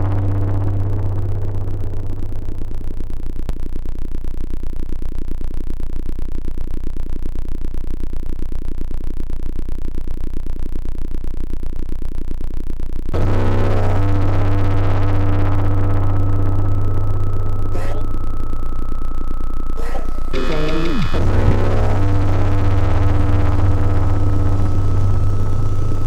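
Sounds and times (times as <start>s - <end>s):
pulsing electronic drone: 0.0s - 12.4s, 13.1s - 26.0s
synthesizer music: 19.8s - 22.6s.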